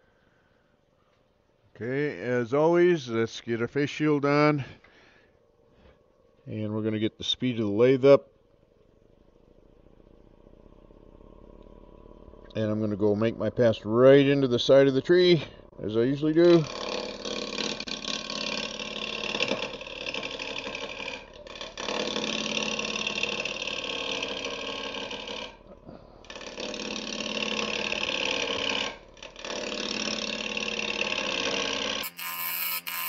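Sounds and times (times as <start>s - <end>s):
lathe motor hum: 9.0s - 33.0s
gouge cutting wood: 16.4s - 33.0s.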